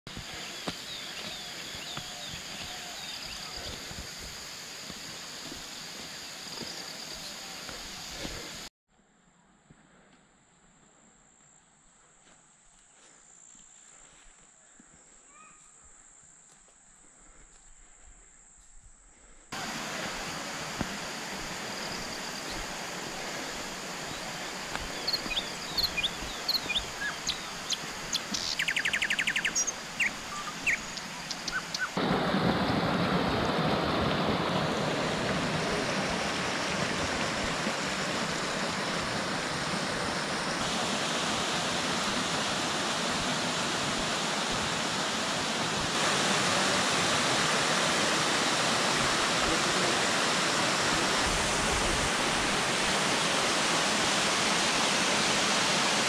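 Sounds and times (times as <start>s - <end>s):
birds chirping: 0.1s - 4.0s, 23.4s - 32.0s
waterfall rushing over rock: 19.6s - 28.2s, 32.0s - 56.0s.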